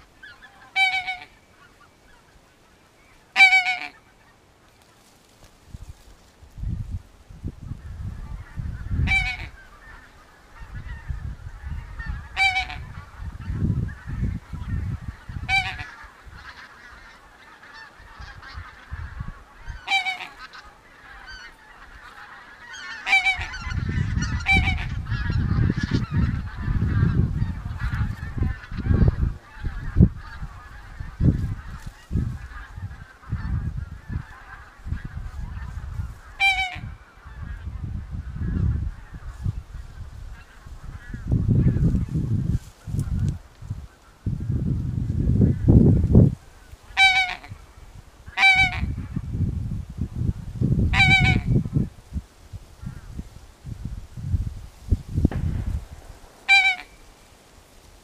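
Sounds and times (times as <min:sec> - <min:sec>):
goose honks: 0:00.2 - 0:01.4, 0:03.3 - 0:04.3, 0:08.4 - 0:11.0, 0:11.6 - 0:37.7, 0:46.9 - 0:47.6, 0:48.3 - 0:49.2, 0:50.9 - 0:51.6, 0:56.4 - 0:57.0
low rumble: 0:55.2 - 0:57.3.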